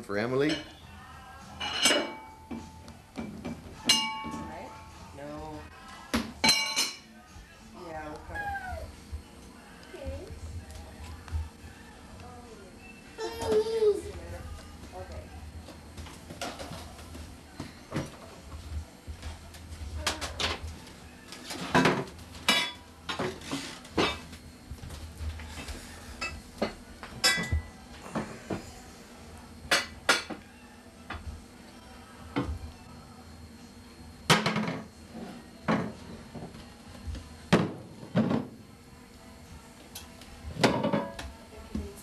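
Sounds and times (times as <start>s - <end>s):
pots and pans clattering: 1.6s - 4.5s, 6.4s - 7.0s, 21.4s - 24.3s, 26.2s - 28.3s, 34.3s - 36.0s, 40.5s - 41.2s.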